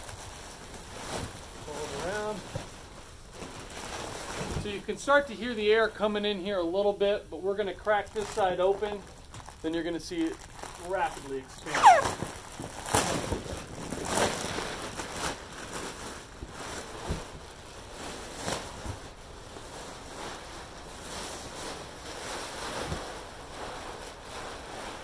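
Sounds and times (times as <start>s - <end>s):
plastic wrapping crinkling: 0.0s - 25.0s.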